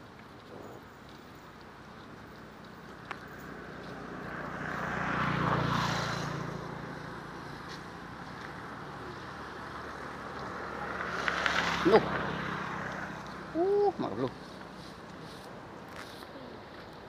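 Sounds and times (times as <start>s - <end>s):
motor passing by: 3.3s - 15.5s.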